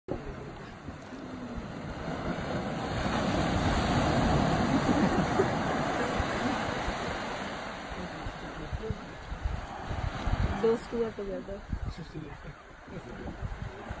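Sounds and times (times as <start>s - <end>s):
ocean surf breaking: 0.1s - 14.0s.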